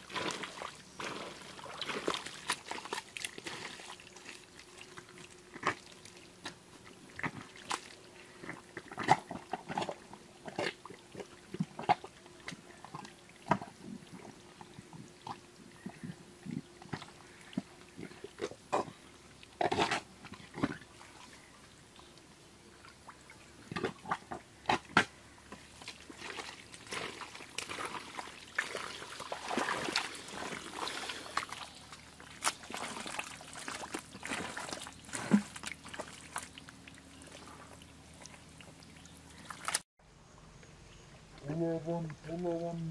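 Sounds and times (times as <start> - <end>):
hands squelching in wet mud: 0.0 - 14.3, 23.7 - 39.8.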